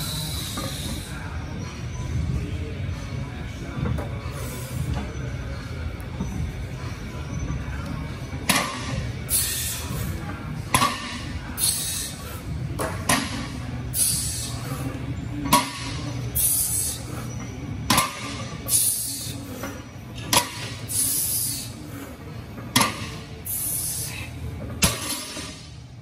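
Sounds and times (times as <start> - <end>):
sharp hissing breaths: 0.0 - 1.3, 9.3 - 10.1, 11.5 - 12.5, 13.9 - 14.9, 20.8 - 22.2, 23.4 - 24.4.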